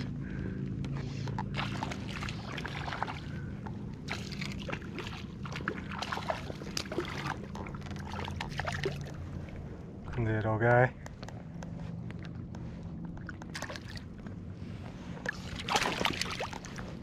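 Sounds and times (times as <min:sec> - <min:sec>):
water sloshing: 0:00.0 - 0:10.2, 0:11.1 - 0:17.0
fish splashing at surface: 0:01.4 - 0:09.2, 0:15.3 - 0:17.0.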